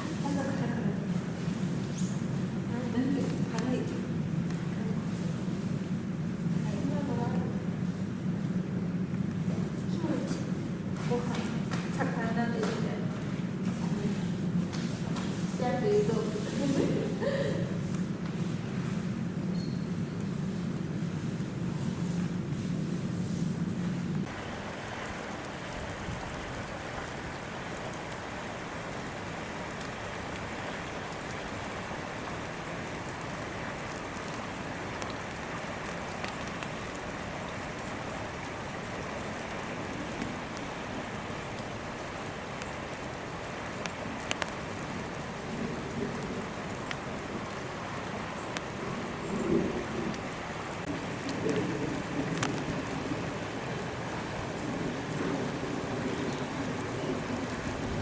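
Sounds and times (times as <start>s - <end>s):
wet snow falling: 0.0s - 58.0s.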